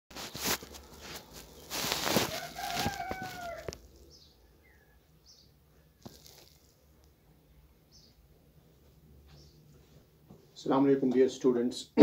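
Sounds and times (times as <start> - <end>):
rooster crowing: 1.8 - 5.1.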